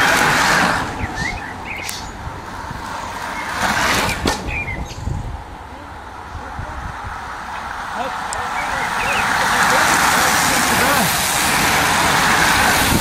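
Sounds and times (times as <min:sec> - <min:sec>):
wind buffeting microphone: 0:00.0 - 0:13.0
bird chirps: 0:01.0 - 0:02.2, 0:03.3 - 0:05.1.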